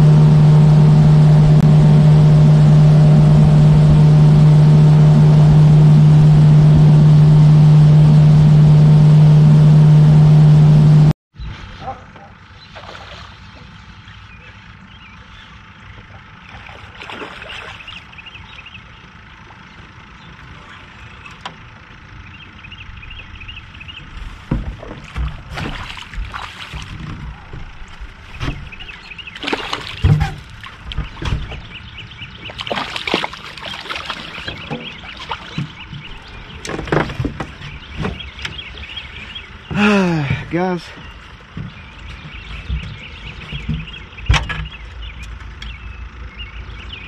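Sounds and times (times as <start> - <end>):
water splashing: 12.7 - 13.6, 16.5 - 18.0, 24.8 - 28.0, 28.6 - 31.7, 32.4 - 36.3.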